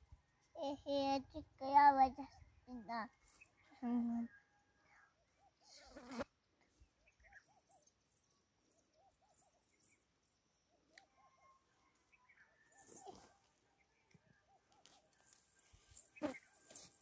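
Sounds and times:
handling rustle: 14.8s - 17.0s.

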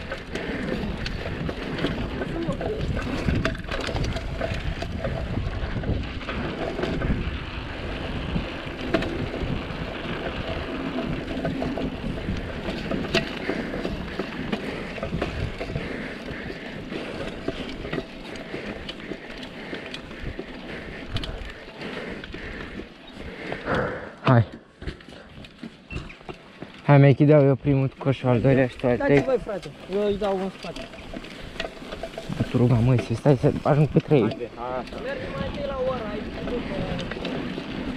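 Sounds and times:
wind on microphone: 0.0s - 14.3s
bike tyre noise: 0.0s - 37.9s
rattling clicks: 28.9s - 35.0s.

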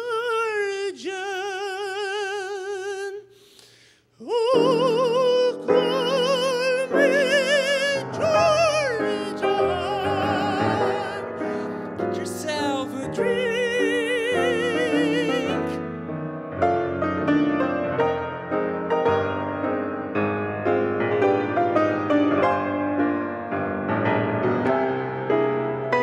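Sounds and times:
operatic singing with vibrato: 0.0s - 3.5s, 4.1s - 16.0s
grand piano chords: 4.3s - 26.0s.

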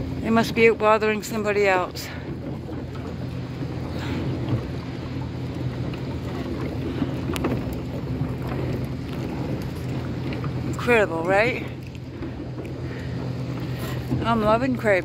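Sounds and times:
boat engine running: 0.0s - 15.0s
water washing: 0.0s - 15.0s
wind: 0.0s - 15.0s.

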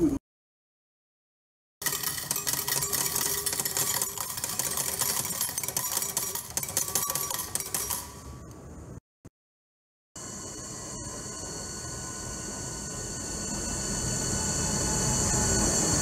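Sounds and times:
coins clattering into metal tray: 1.8s - 8.3s.

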